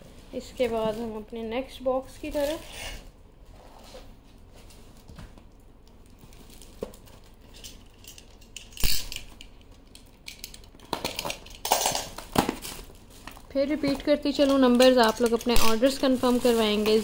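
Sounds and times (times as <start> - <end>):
packaging rustling: 6.0 - 8.1, 11.0 - 17.0.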